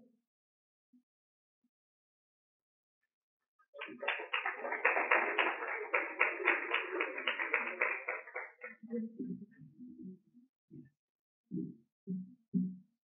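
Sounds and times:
audience applauding: 0:03.8 - 0:08.7.

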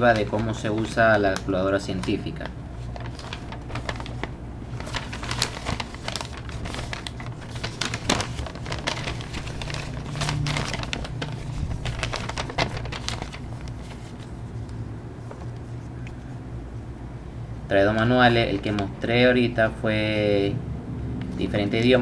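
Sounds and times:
paper rustling and crinkling: 0:00.0 - 0:16.4, 0:17.9 - 0:19.1.

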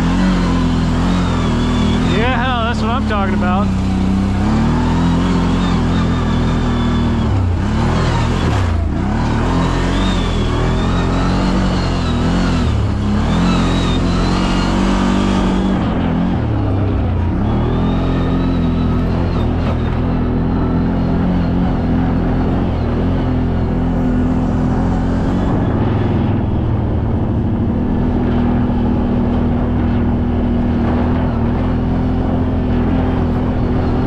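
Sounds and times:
atv engine revving: 0:00.0 - 0:34.0.

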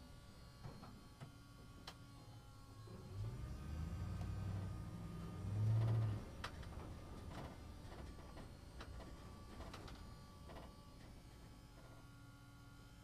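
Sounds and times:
truck engine passing: 0:03.1 - 0:06.2.

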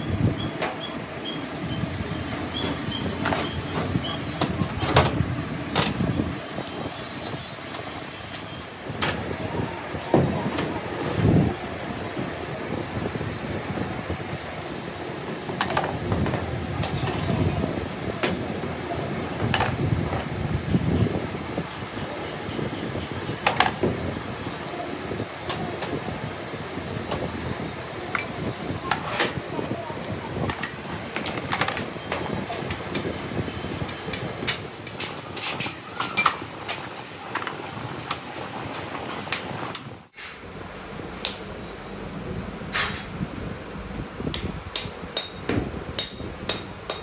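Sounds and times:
low workshop rumble: 0:00.0 - 0:47.0
hand tools clinking on metal: 0:28.1 - 0:37.5.

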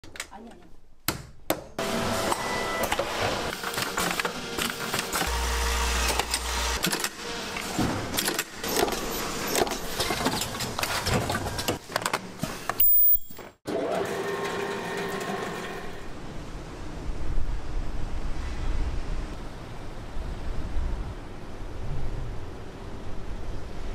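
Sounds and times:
running machinery: 0:01.8 - 0:10.2.

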